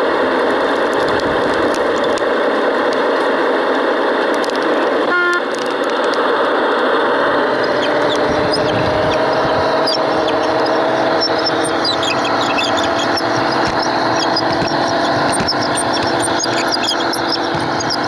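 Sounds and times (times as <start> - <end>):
wheels rolling on rails: 0.0 - 3.4, 4.2 - 18.0
model train motor whine: 5.1 - 18.0.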